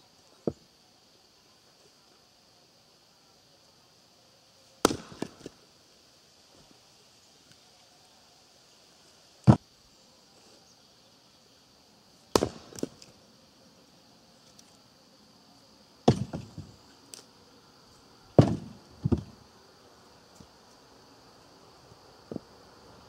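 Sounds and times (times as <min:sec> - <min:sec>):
axe chopping wood: 0:04.8 - 0:05.6, 0:12.3 - 0:13.1, 0:16.0 - 0:16.7, 0:18.4 - 0:19.3.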